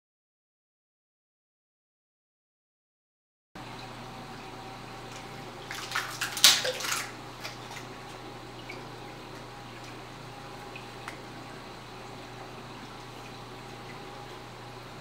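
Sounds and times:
water splashing and trickling: 3.6s - 14.5s
steady low hum: 3.6s - 15.0s.

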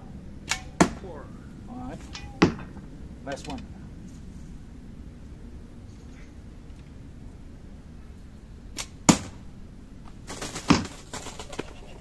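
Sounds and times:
impact with short rattle: 10.2s - 11.8s
arrow thudding into cardboard box: 10.5s - 11.2s.

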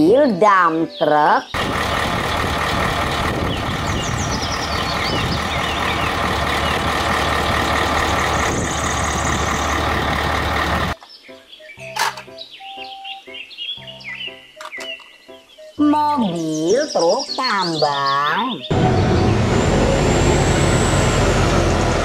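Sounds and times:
background music: 0.0s - 1.5s, 11.0s - 18.7s
birds chirping: 0.0s - 21.0s
diesel truck engine running: 1.6s - 11.0s, 18.7s - 22.0s.

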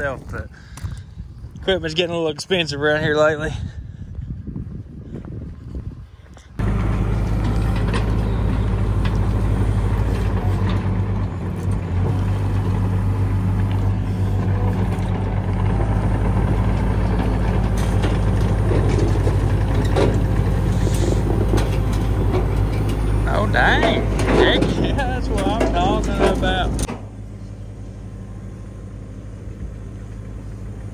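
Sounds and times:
excavator tracks clanking: 6.6s - 27.3s
diesel engine running: 6.6s - 30.9s.

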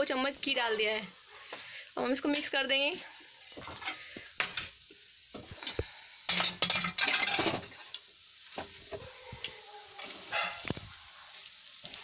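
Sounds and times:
sizzling: 0.0s - 12.0s
spoon scraping a pan: 6.3s - 8.0s.

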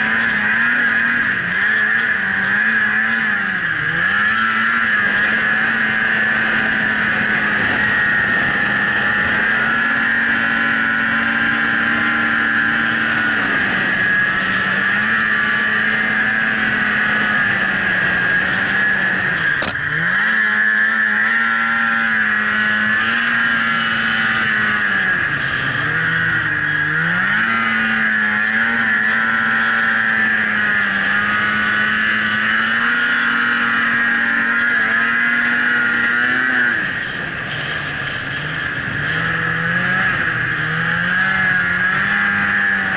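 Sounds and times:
snowmobile engine running: 0.0s - 42.9s
sharp click: 19.6s - 19.8s.

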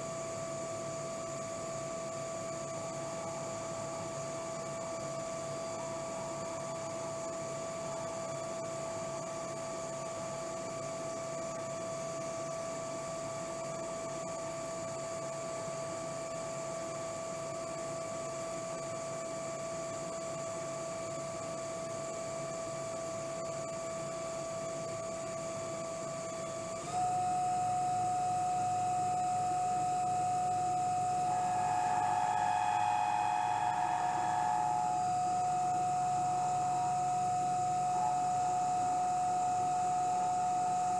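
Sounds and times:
lathe drive whine: 18.8s - 40.9s
high ringing tool chatter: 31.2s - 35.9s.

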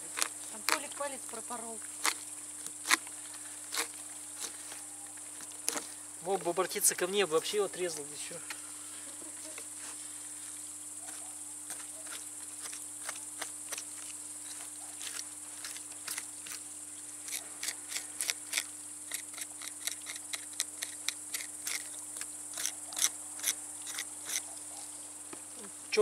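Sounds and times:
insects buzzing: 0.0s - 26.0s
knife scraping fish: 17.3s - 24.5s.

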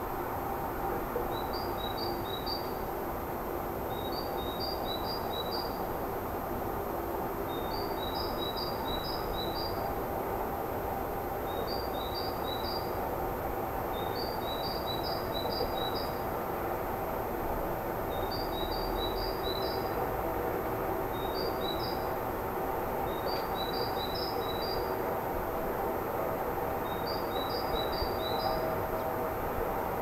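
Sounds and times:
small songbird singing: 1.3s - 2.8s, 3.9s - 5.8s, 7.5s - 9.8s, 11.5s - 12.9s, 13.9s - 16.2s, 18.1s - 20.0s, 21.1s - 22.0s, 23.1s - 24.9s, 26.8s - 28.6s.

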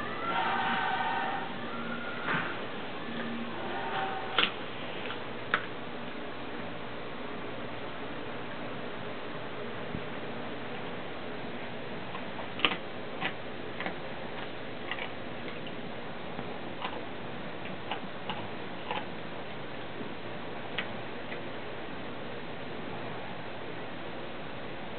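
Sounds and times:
dog chewing with crunches: 12.0s - 19.3s.

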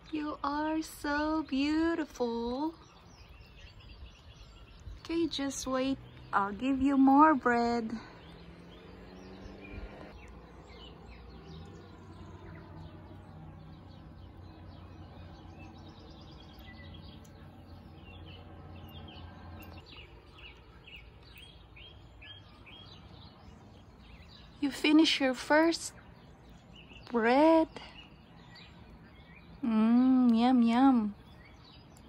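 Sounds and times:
bird chirping: 0.0s - 32.0s.

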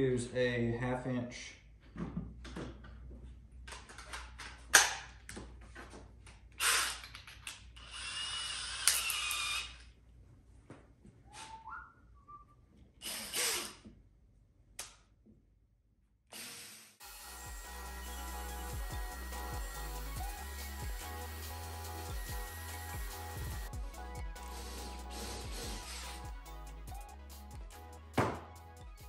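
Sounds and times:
cordless drill whirring: 6.6s - 9.9s, 13.0s - 13.9s, 16.3s - 26.2s.

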